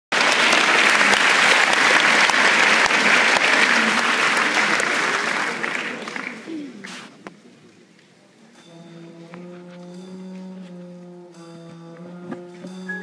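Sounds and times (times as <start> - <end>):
audience applauding: 0.1 - 7.1.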